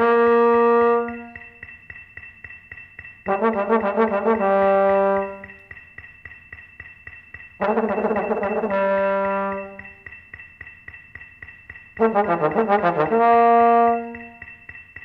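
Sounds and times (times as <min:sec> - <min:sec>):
bass trombone tongued notes: 0:00.0 - 0:01.4, 0:07.6 - 0:09.8, 0:12.0 - 0:14.3.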